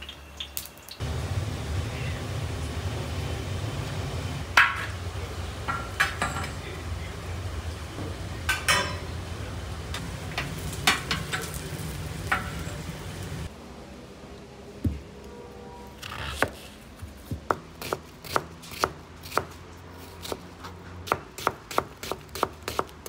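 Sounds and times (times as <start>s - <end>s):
oil sizzling: 0.0s - 13.5s.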